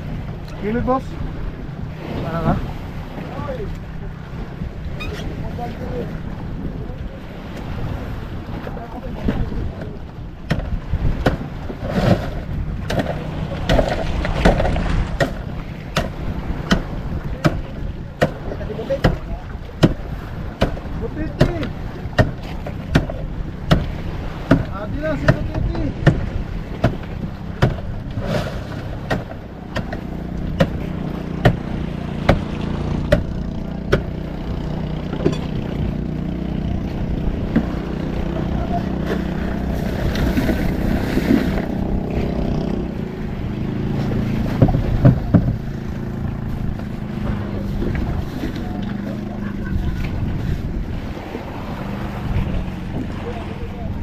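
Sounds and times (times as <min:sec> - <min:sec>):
boat engine low rumble: 0:00.0 - 0:54.0
sharp knocks: 0:10.4 - 0:28.2, 0:28.9 - 0:34.2, 0:44.4 - 0:45.8.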